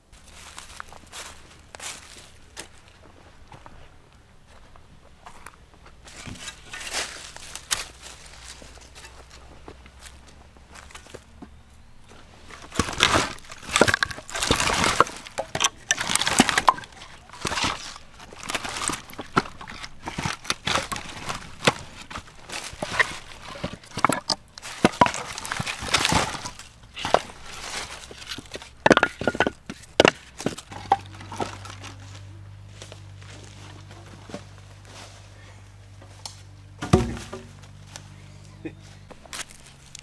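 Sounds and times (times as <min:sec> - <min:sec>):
wooden logs knocking: 0:12.5 - 0:32.0, 0:36.8 - 0:37.6.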